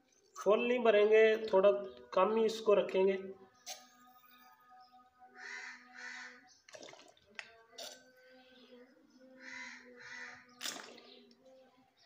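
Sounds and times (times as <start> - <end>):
bird calling: 9.4 - 11.3.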